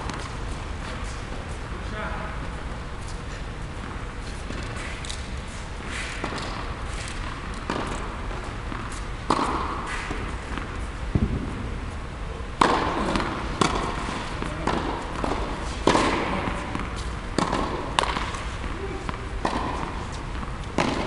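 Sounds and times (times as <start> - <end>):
tennis ball bouncing on court: 6.2 - 11.6, 12.6 - 21.0
tennis ball struck by rackets: 6.2 - 11.7, 12.6 - 21.0.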